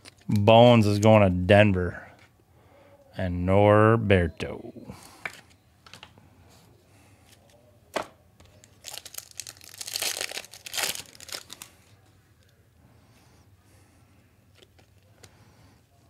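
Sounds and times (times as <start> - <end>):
wrapper tearing and crinkling: 8.6 - 11.7.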